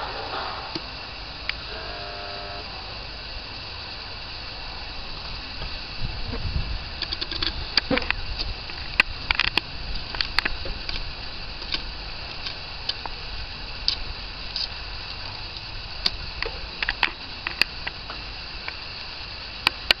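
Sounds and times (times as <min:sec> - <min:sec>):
low rumble and hiss: 0:00.0 - 0:20.0
sharp clicks and ticks: 0:07.0 - 0:13.2.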